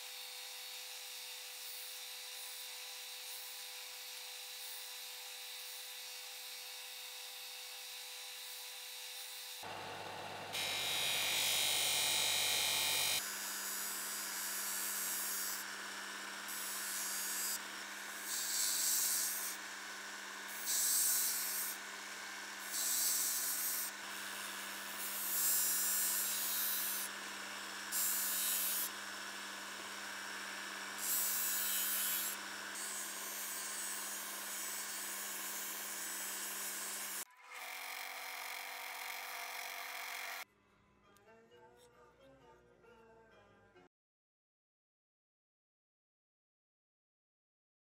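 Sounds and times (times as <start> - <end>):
blade grinding on sanding disc: 9.2 - 40.4
disc sander motor hum: 9.6 - 37.2.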